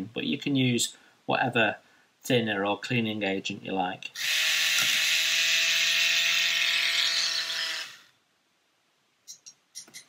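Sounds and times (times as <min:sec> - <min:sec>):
paint mixer motor whining: 0:04.2 - 0:08.2.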